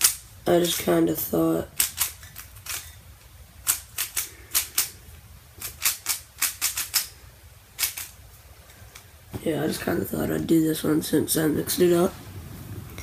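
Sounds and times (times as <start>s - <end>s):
speed cube clacking: 0.0s - 1.0s, 1.7s - 7.2s, 7.8s - 8.2s.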